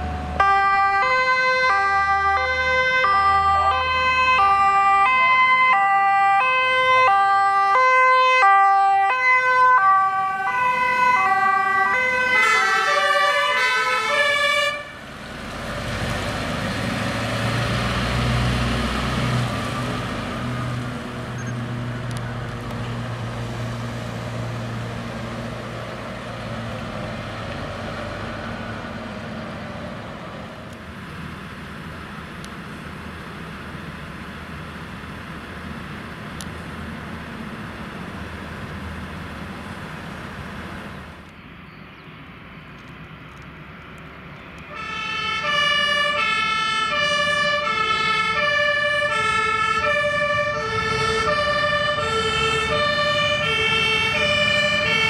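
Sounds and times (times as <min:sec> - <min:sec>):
two-tone siren: 0:00.0 - 0:15.0, 0:44.7 - 0:55.0
diesel truck engine rumbling: 0:00.0 - 0:55.0.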